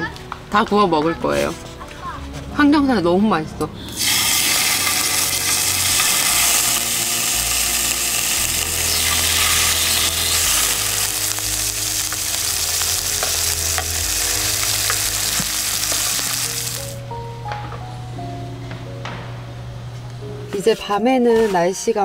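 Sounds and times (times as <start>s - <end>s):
soft background music: 0.0s - 22.0s
meat sizzling in grill pan: 4.0s - 17.0s.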